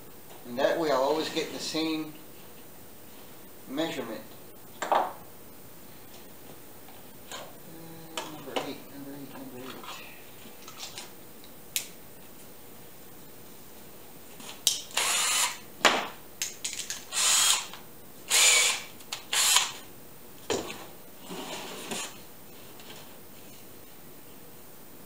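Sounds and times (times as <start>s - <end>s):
cordless drill bursts: 14.9s - 15.6s, 17.1s - 17.7s, 18.3s - 19.8s.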